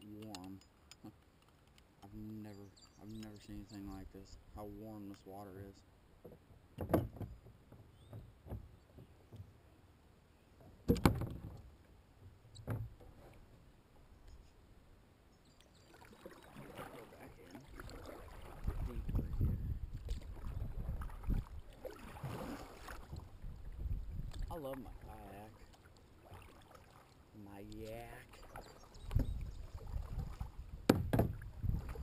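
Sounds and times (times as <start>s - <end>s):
knocks against kayak hull: 6.2s - 8.7s, 10.9s - 11.6s, 30.8s - 31.4s
paddle splashing through water: 15.8s - 32.0s.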